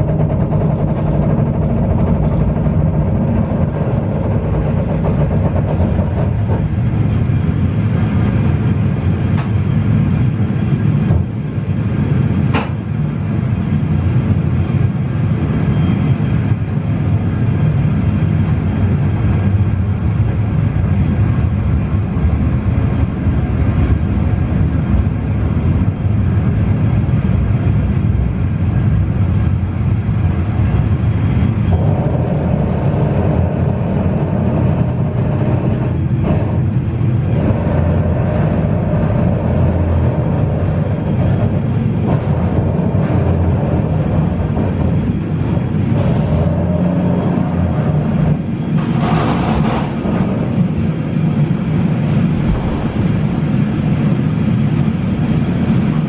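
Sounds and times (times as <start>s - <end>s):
train wheels rumbling: 0.0s - 56.0s.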